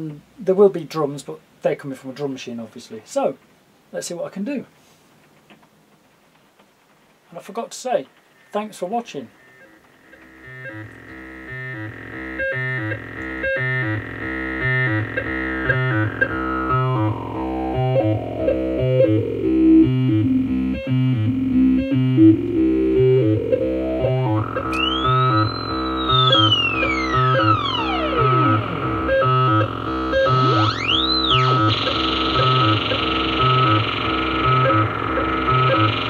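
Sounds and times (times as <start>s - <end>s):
synthesiser sequenced pattern: 9.4s - 36.0s
drum machine beat: 10.2s - 36.0s
high synth swoop: 10.2s - 36.0s.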